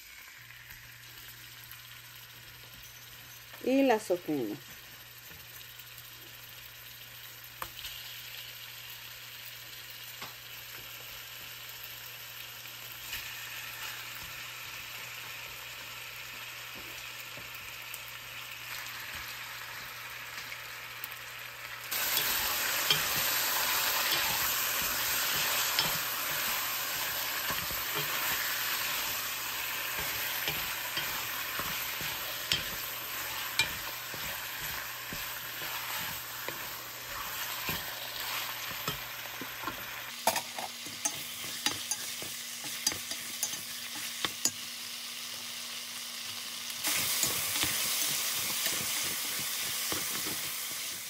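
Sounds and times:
meat sizzling in hot oil: 0:00.0 - 0:51.0
wooden spatula stirring meat: 0:22.0 - 0:39.9.

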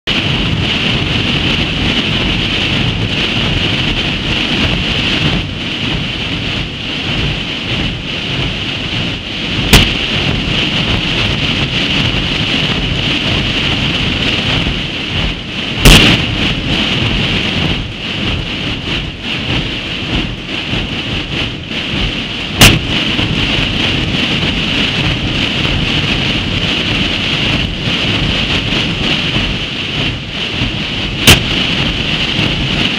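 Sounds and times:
drums rolling: 0:00.1 - 0:32.9
sharp drum cracks: 0:09.6 - 0:10.5, 0:15.8 - 0:16.9, 0:22.6 - 0:23.4, 0:31.2 - 0:32.9.

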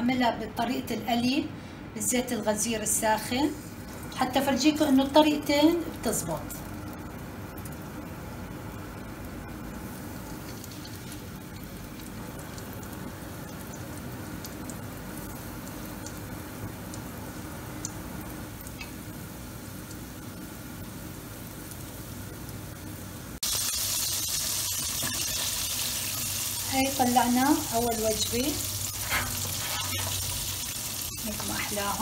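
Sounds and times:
chicken sizzling in hot oil: 0:06.6 - 0:32.0.

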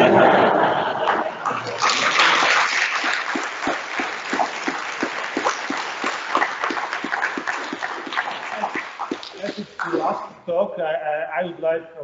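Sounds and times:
audience applauding: 0:00.8 - 0:10.2.

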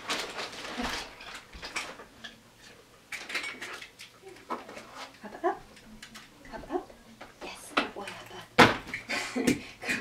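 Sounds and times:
small objects clicking and rustling: 0:00.0 - 0:05.1.

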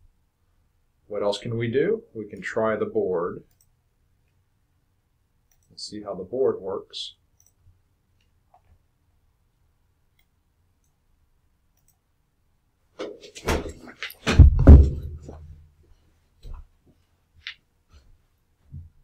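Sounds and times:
knocks and thumps: 0:13.0 - 0:15.5.

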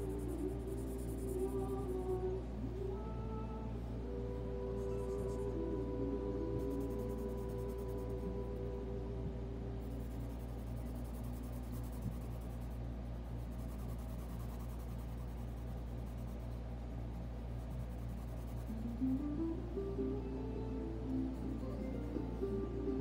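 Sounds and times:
steady low hum: 0:00.0 - 0:23.0
pencil scratching on paper: 0:09.8 - 0:19.0.

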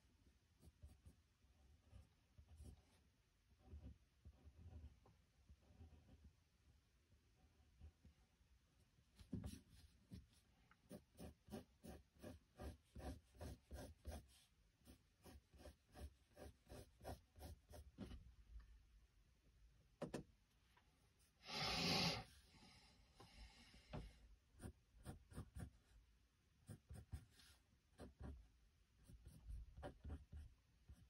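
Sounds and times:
pencil scratching on paper: 0:00.6 - 0:06.4, 0:09.3 - 0:18.1, 0:24.5 - 0:26.0, 0:26.6 - 0:31.0.

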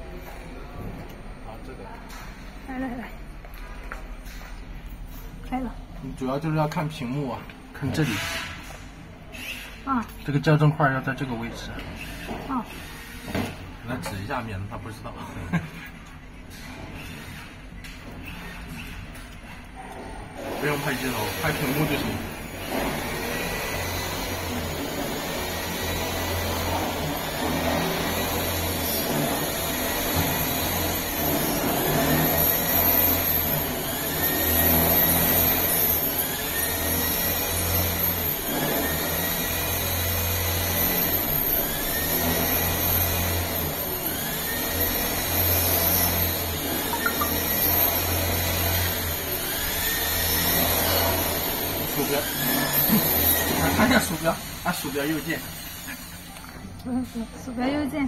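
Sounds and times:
machinery whirring: 0:20.2 - 0:58.0.

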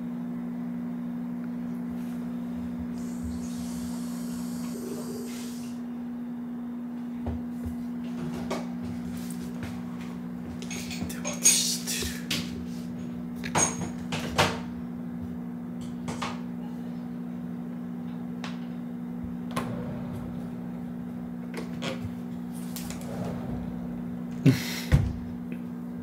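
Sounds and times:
steady low hum: 0:00.0 - 0:26.0
door opening: 0:19.4 - 0:25.4.

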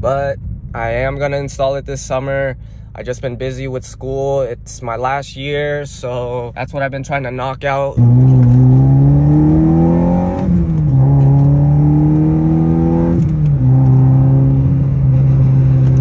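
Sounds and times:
car engine accelerating hard: 0:08.0 - 0:16.0.

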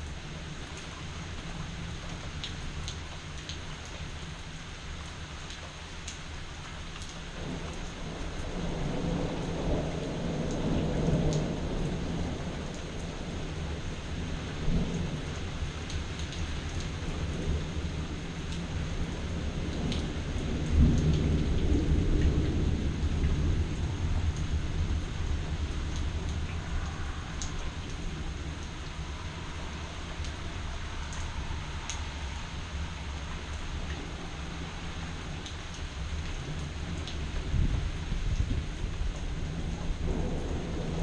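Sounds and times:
steady rain: 0:00.0 - 0:41.0
thunder rumbling: 0:07.4 - 0:41.0.

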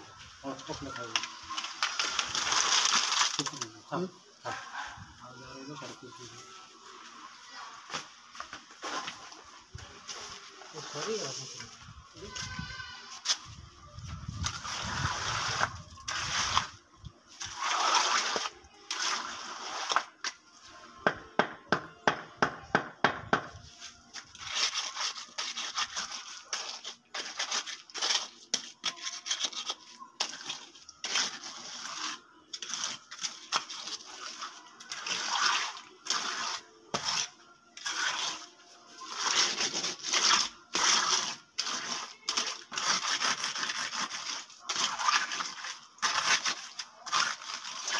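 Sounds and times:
trowel scraping wet concrete: 0:00.5 - 0:05.1, 0:14.2 - 0:20.4, 0:23.6 - 0:47.9.

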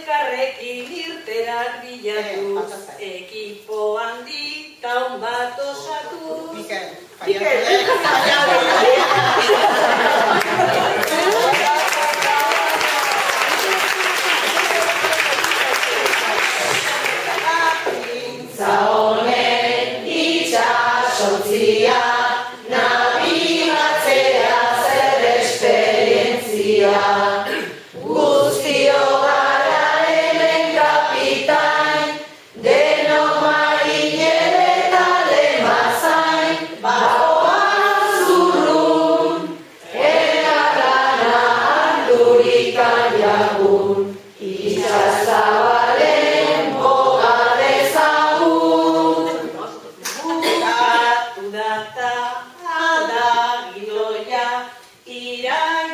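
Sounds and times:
group of voices singing: 0:07.6 - 0:55.9.

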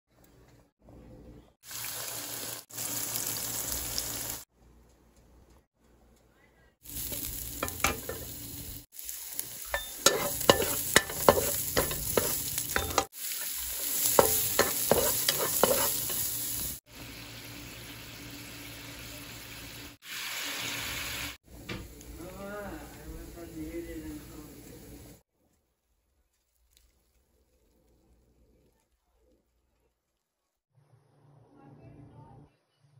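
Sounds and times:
food sizzling in oil: 0:01.6 - 0:04.5, 0:06.8 - 0:22.0
spatula scraping a pan: 0:07.1 - 0:08.3, 0:09.7 - 0:16.8.

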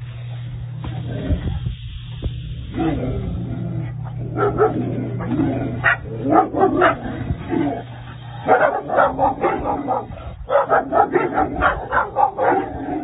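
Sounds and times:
dogs barking and yipping: 0:03.9 - 0:07.4, 0:08.0 - 0:13.0.

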